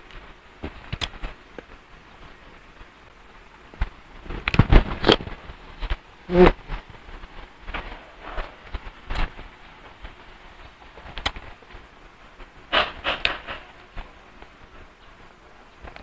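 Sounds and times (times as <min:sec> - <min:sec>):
person humming: 0:06.3 - 0:06.8.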